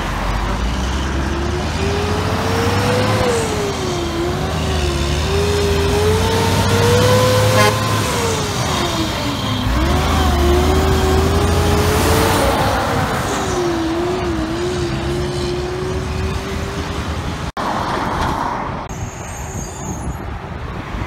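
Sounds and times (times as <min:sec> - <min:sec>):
truck diesel engine accelerating: 0:00.0 - 0:17.7.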